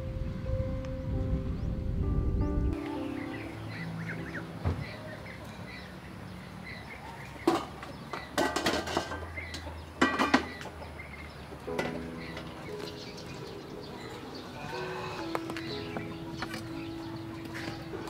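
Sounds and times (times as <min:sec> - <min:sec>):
steel bowls clanking: 0:07.4 - 0:10.6.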